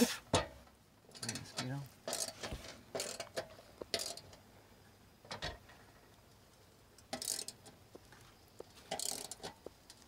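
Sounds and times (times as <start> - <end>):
tools tapping and scraping metal: 0.3 - 4.4, 7.1 - 7.8, 8.6 - 10.0.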